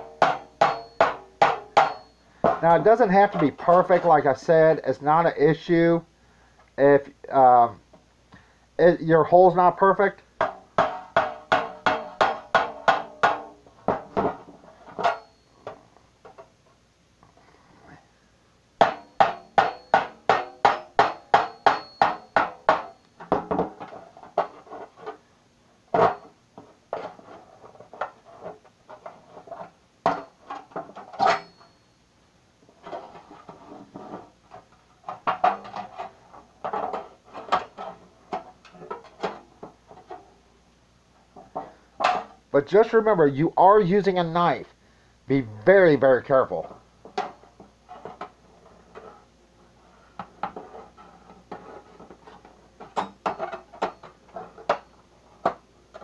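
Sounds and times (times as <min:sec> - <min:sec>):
metal tin ringing: 0:00.0 - 0:02.9, 0:18.8 - 0:23.4, 0:31.2 - 0:31.8.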